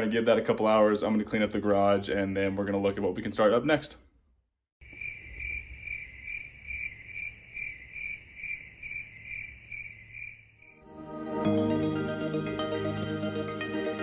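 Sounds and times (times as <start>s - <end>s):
crickets chirping: 4.8s - 10.8s
music: 10.8s - 14.0s.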